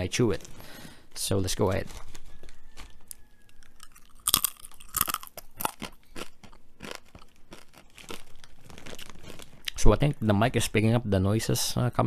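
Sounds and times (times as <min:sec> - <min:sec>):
potato chip crunching: 0:01.3 - 0:10.1.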